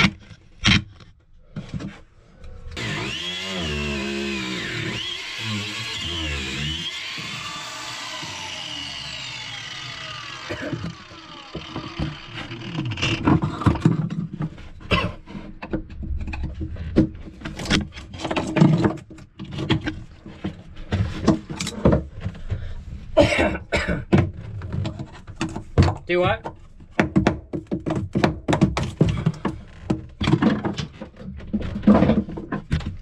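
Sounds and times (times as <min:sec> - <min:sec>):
angle grinder spinning down: 0:02.8 - 0:13.3.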